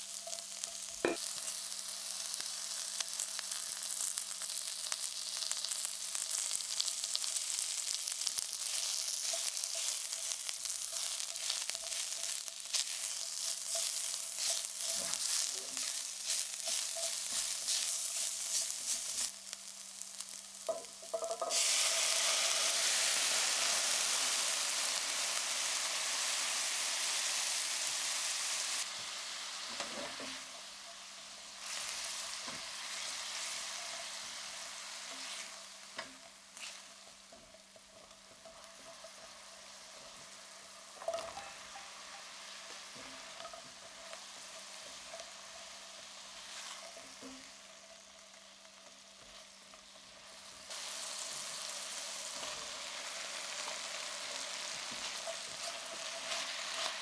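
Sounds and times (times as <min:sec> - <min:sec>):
liquid hissing in hot pan: 0:00.0 - 0:37.8, 0:38.4 - 0:57.0
food sizzling in hot oil: 0:00.0 - 0:57.0
spatula scraping a pan: 0:08.6 - 0:19.3, 0:35.1 - 0:37.8, 0:54.3 - 0:57.0.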